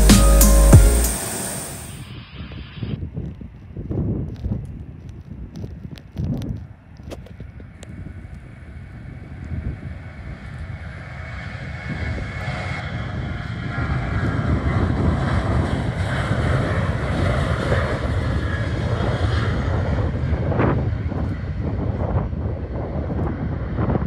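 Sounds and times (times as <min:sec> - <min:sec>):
jet engines roaring: 0:00.0 - 0:03.0, 0:08.0 - 0:24.0.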